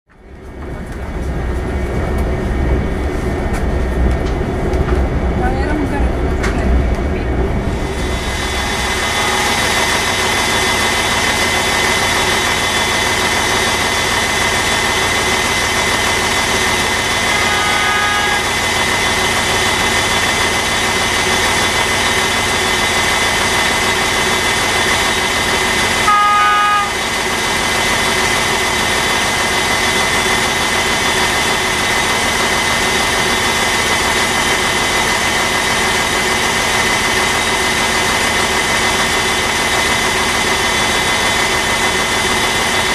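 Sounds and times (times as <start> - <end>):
diesel locomotive engine whine: 0.1 - 42.9
locomotive horn blasts: 8.9 - 9.9, 17.2 - 18.7, 26.0 - 27.1.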